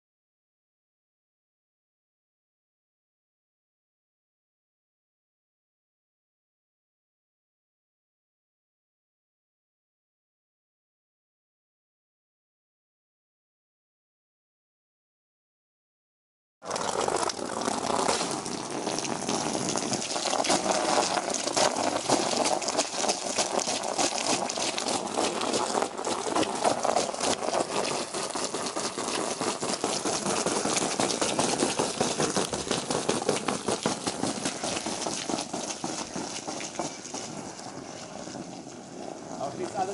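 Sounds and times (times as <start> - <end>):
hose water splashing into pool: 16.6 - 39.9.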